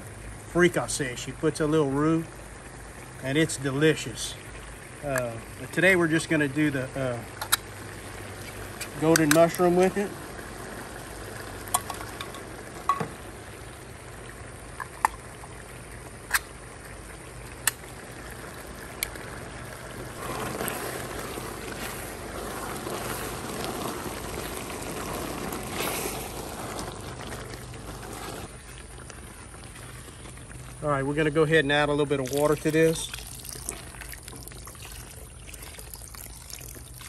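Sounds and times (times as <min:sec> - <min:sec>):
cans knocking on pot: 0:11.7 - 0:13.2
thick mixture sloshing when stirred: 0:20.0 - 0:30.8.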